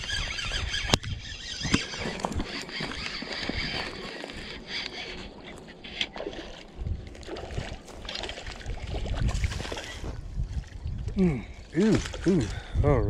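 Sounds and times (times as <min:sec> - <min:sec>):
fishing reel being cranked: 0:00.0 - 0:06.6
wind buffeting microphone: 0:00.0 - 0:13.0.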